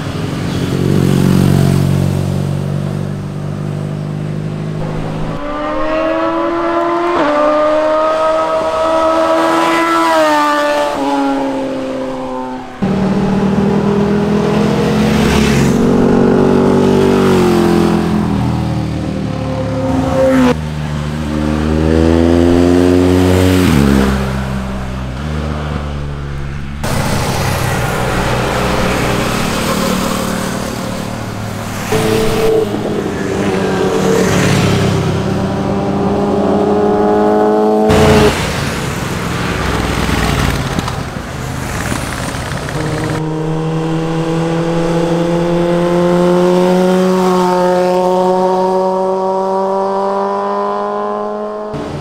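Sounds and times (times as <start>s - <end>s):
motorcycle engines revving past: 0.0s - 52.0s.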